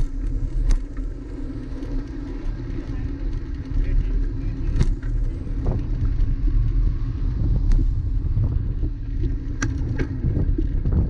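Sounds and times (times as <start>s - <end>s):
bicycle rolling on wet pavement: 0.0s - 11.0s.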